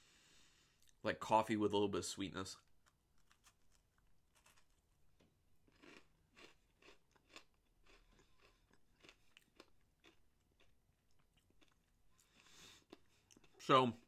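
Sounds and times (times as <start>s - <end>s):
cookie crunching and chewing: 2.6s - 13.8s.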